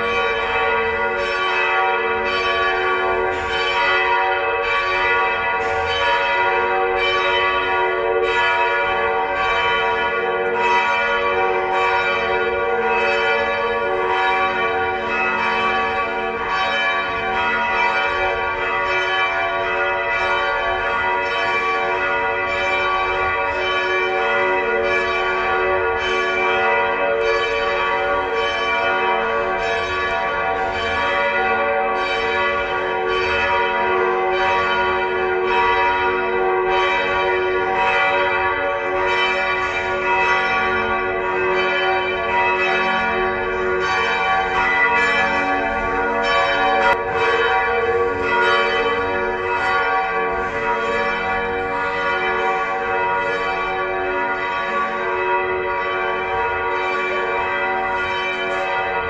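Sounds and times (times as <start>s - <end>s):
church bells ringing: 0.0s - 59.0s.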